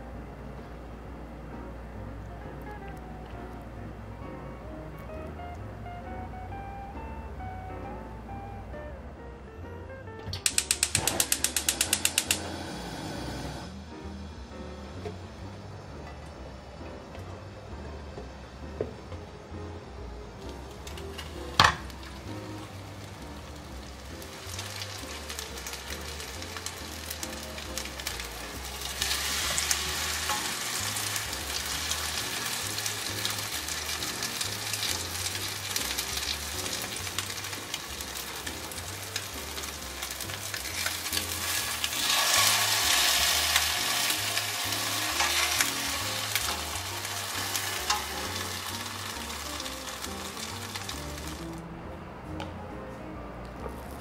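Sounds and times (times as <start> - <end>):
bread sizzling in a pan: 20.6 - 51.5.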